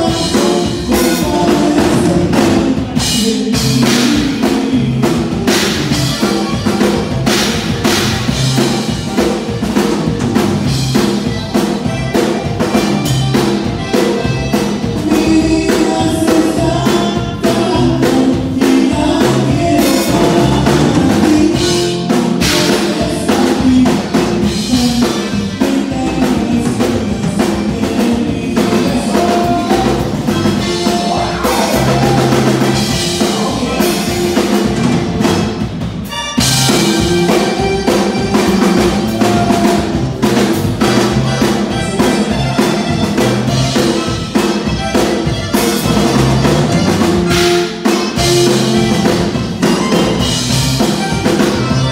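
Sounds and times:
person singing: 0:00.0 - 0:06.4, 0:13.3 - 0:35.0, 0:36.1 - 0:44.0
band playing dance music: 0:00.0 - 0:51.9
drum kit beat: 0:00.0 - 0:51.9.

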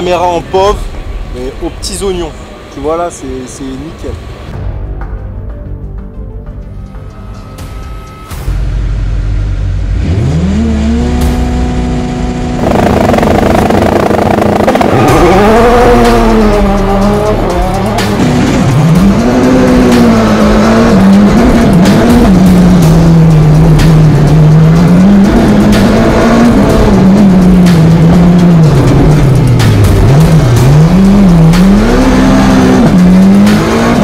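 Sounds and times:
race car engine revving: 0:09.3 - 0:34.0
sharp engine cracks: 0:12.6 - 0:15.1.

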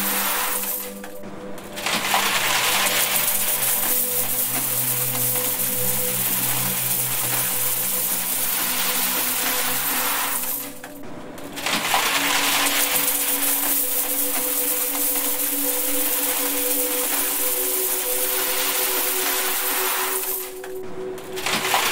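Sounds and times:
low steady tones: 0:00.0 - 0:21.9
coins pouring and clinking: 0:01.8 - 0:10.9, 0:11.6 - 0:20.8.

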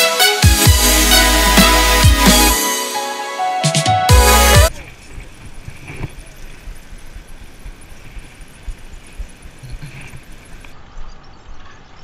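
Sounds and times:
bicycle tyres rolling on asphalt: 0:04.7 - 0:12.0.

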